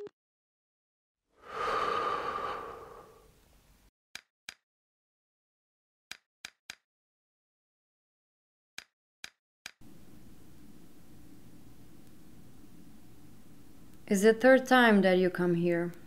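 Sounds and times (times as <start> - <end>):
loud breathy sound: 1.4 - 3.4.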